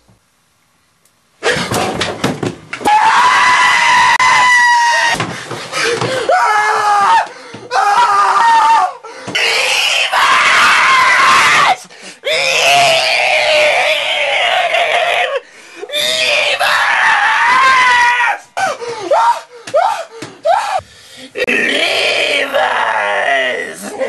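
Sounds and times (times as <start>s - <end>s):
man screaming: 2.8s - 5.2s, 6.3s - 18.4s, 21.4s - 24.0s.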